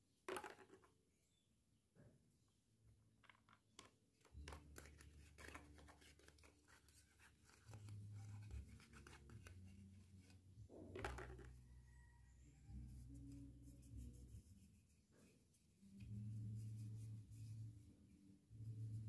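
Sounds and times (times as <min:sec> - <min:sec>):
plastic toys clicking and scratching: 0:03.2 - 0:09.6.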